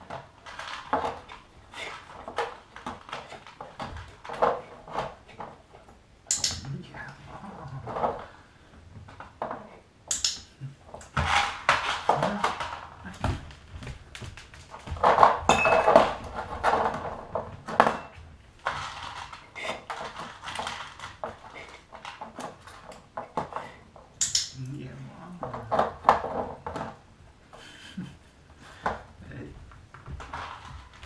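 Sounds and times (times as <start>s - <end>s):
glass jars clinking: 15.5s - 16.2s.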